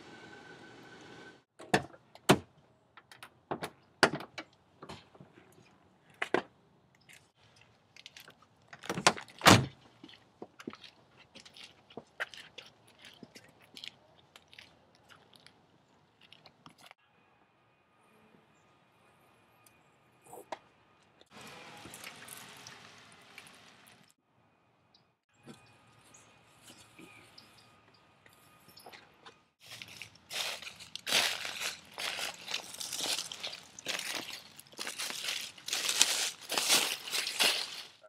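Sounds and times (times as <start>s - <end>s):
footsteps on asphalt: 29.6s - 38.0s.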